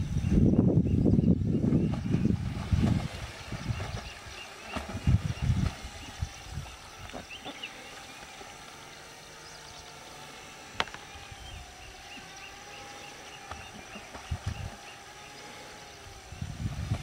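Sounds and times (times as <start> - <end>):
drone propeller motors humming: 0.0 - 17.0
bird chirping: 3.6 - 16.4.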